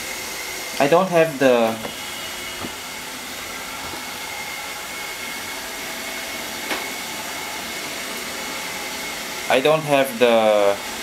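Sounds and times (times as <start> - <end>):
robot vacuum whirring with whine: 0.0 - 11.0.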